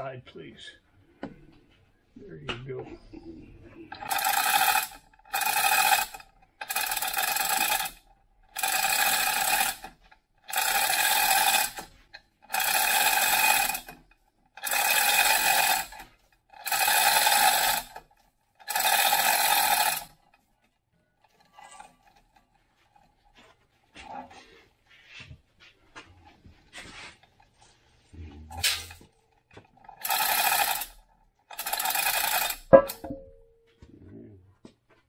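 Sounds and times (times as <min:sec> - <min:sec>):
chain hoist working: 0:03.9 - 0:20.5, 0:21.2 - 0:23.1, 0:28.5 - 0:33.0.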